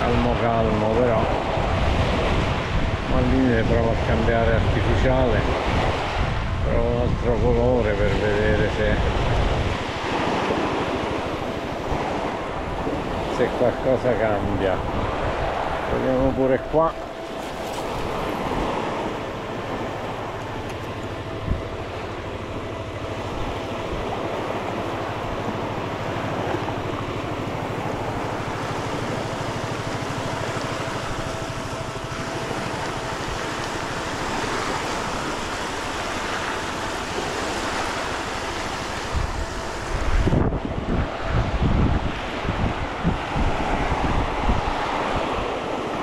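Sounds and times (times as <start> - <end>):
wind on microphone: 0.0 - 46.0.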